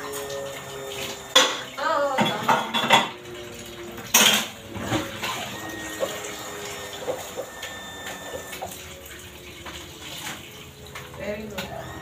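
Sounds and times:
tap water running into sink: 0:00.0 - 0:12.0
dishware clinking: 0:01.4 - 0:03.2, 0:04.1 - 0:04.6.

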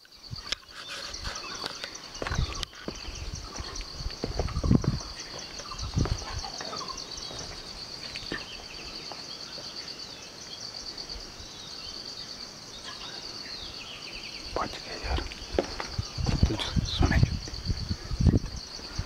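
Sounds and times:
insects trilling: 0:00.0 - 0:19.0
low thumps: 0:02.2 - 0:06.4, 0:15.1 - 0:18.6.

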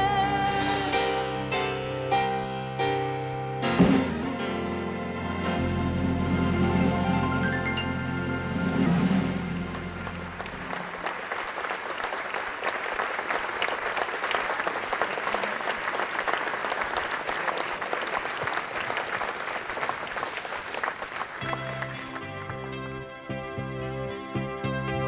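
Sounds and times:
held music chord: 0:00.0 - 0:11.0, 0:21.4 - 0:25.0
audience applauding: 0:06.2 - 0:23.2.

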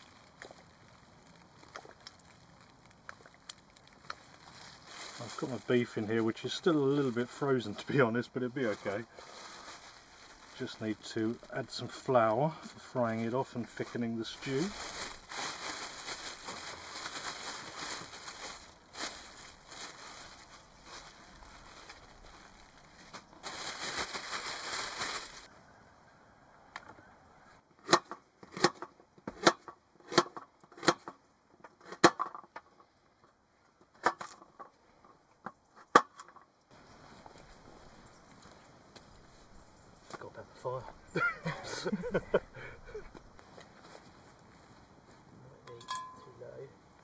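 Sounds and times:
plastic bag crinkling: 0:00.0 - 0:07.0, 0:07.9 - 0:11.6, 0:13.9 - 0:25.5.

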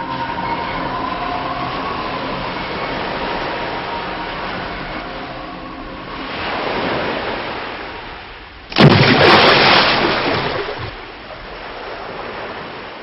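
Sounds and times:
loud crash: 0:08.7 - 0:10.9.

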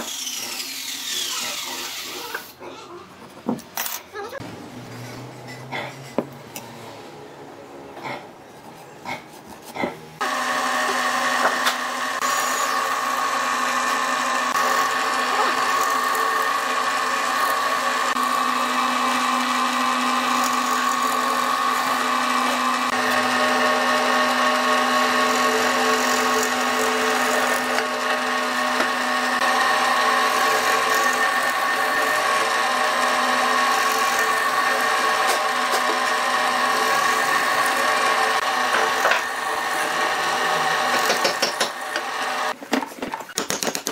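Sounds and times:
power tool whining on wood: 0:00.0 - 0:02.6, 0:10.2 - 0:42.6.

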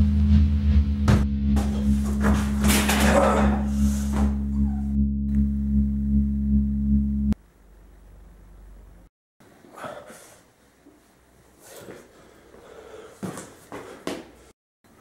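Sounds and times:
low pulsing droning hum: 0:00.0 - 0:09.1.

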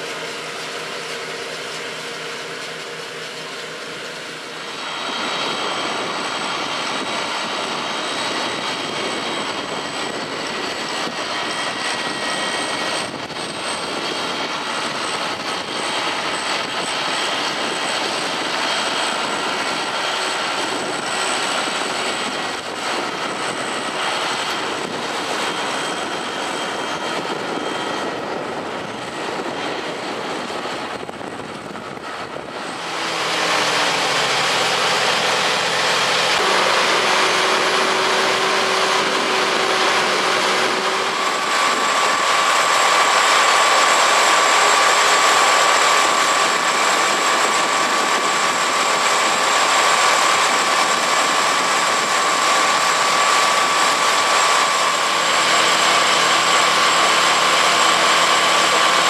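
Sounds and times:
steady machine whine: 0:00.0 - 0:59.0
tractor engine running: 0:32.0 - 0:59.0
slurry pump machine running: 0:32.1 - 0:59.0.

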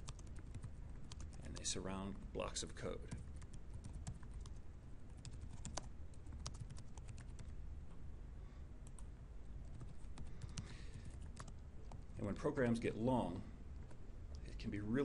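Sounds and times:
computer keyboard typing: 0:00.0 - 0:01.7, 0:03.0 - 0:04.6, 0:05.2 - 0:07.5, 0:09.7 - 0:12.0.

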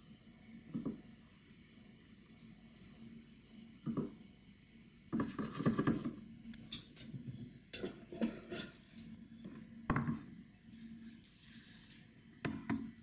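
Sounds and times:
dishes clattering: 0:07.8 - 0:08.8.

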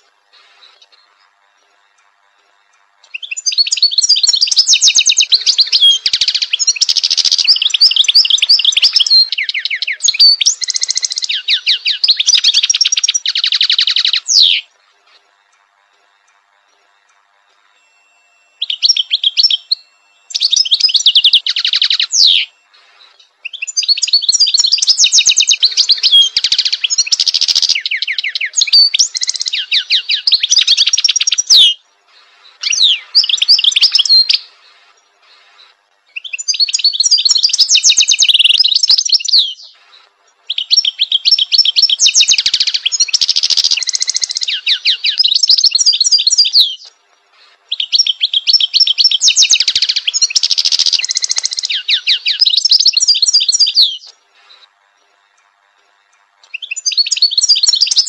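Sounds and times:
goldfinch twittering and trilling: 0:03.0 - 0:14.7, 0:17.8 - 0:39.8, 0:40.5 - 0:46.9, 0:47.7 - 0:54.7, 0:56.4 - 0:58.0.

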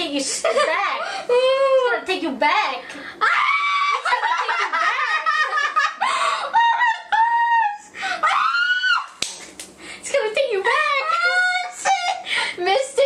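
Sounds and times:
women squealing and laughing: 0:03.2 - 0:09.2, 0:10.7 - 0:12.3.

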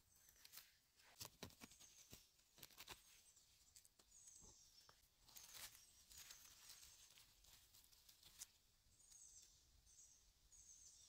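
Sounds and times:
rustling of plants: 0:00.0 - 0:09.5.

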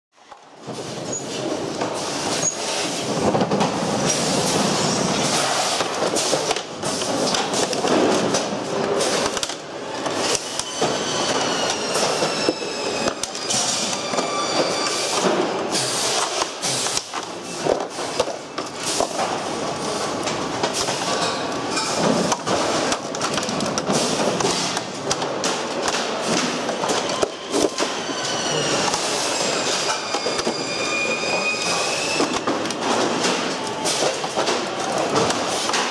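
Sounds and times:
workshop din: 0:00.3 - 0:35.9
plastic and metal parts clattering: 0:00.6 - 0:28.1, 0:31.6 - 0:35.9
high squealing whine: 0:10.3 - 0:15.8, 0:26.7 - 0:32.5.

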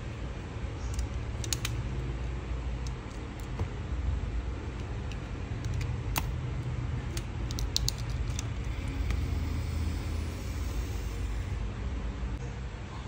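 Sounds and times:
steady low rumble: 0:00.0 - 0:12.4
clicks handling phone parts: 0:00.8 - 0:01.8, 0:04.7 - 0:08.7.

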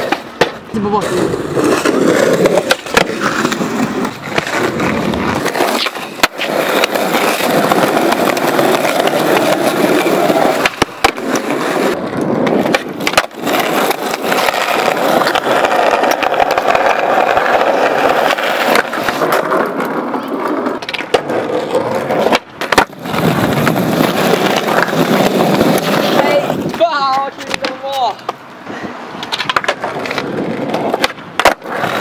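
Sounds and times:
sharp skateboard knocks: 0:00.0 - 0:00.6, 0:10.6 - 0:11.4, 0:12.4 - 0:14.6, 0:22.2 - 0:25.9, 0:26.6 - 0:28.4, 0:29.2 - 0:32.0
skateboard wheels rolling on concrete: 0:00.0 - 0:32.0.

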